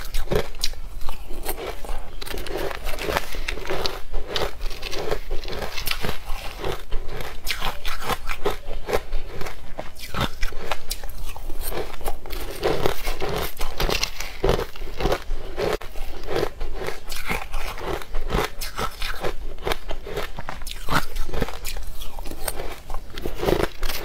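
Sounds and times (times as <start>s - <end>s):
crunching ice: 0.0s - 24.0s.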